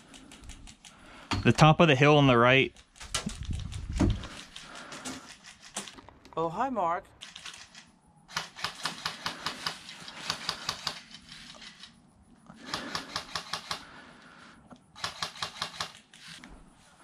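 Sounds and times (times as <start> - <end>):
airsoft guns firing automatic: 8.3 - 11.1, 12.6 - 14.0, 15.0 - 16.2.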